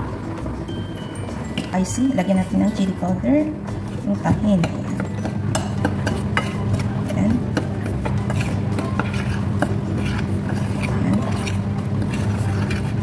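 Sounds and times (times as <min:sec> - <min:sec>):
steady low hum: 0:00.0 - 0:13.0
fork clinking and scraping plate: 0:04.6 - 0:13.0.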